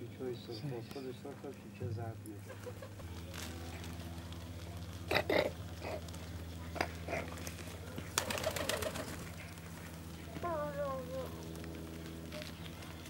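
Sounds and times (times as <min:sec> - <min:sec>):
steady low hum: 0:00.0 - 0:13.0
pigeons pecking at ground: 0:00.1 - 0:13.0
pigeons cooing: 0:05.1 - 0:11.4.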